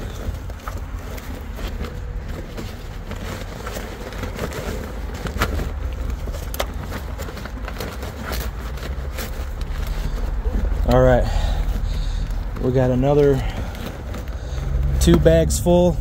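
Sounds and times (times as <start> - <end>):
notebooks rustling and clacking: 0.0 - 16.0
steady low rumble: 9.0 - 16.0.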